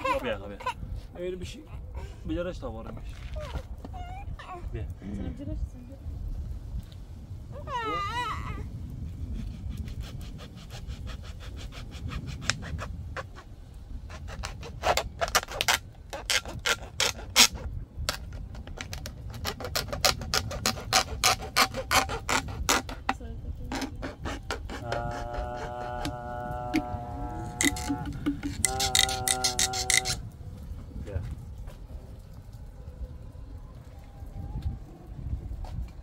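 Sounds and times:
low rumble: 23.1s - 36.0s
sharp clicks and knocks: 27.6s - 30.2s.

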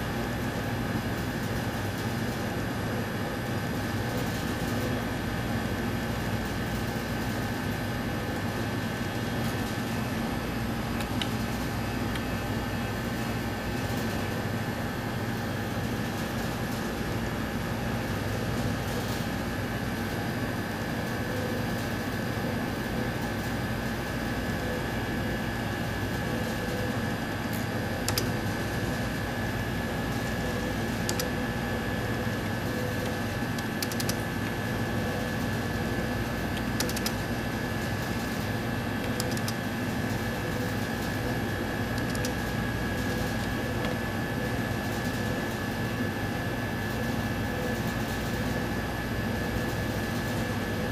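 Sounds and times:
instrument cooling fans humming: 0.0s - 50.9s
sharp clicks: 28.1s - 28.3s, 33.0s - 34.2s, 36.6s - 37.2s, 39.0s - 39.6s, 42.0s - 42.4s.

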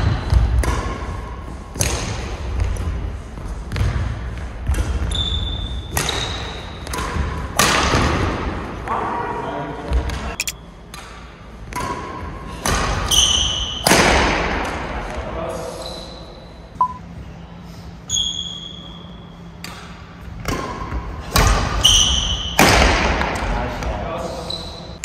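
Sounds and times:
racket hitting shuttlecock: 0.3s - 2.3s, 5.9s - 8.4s, 10.9s - 14.8s, 19.6s - 23.6s
shoes squeaking on court floor: 4.7s - 7.3s, 18.1s - 22.6s, 24.2s - 25.0s.

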